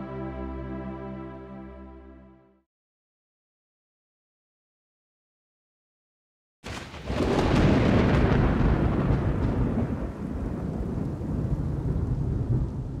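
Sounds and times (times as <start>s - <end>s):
thunder rumbling: 6.6s - 13.0s.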